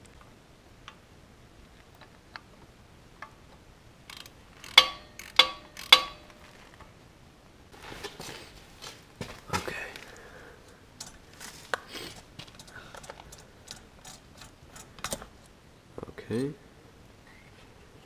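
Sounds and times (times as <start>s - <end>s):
sharp metallic clinks: 4.1s - 6.4s
soft rustle: 6.3s - 7.0s, 7.7s - 13.6s.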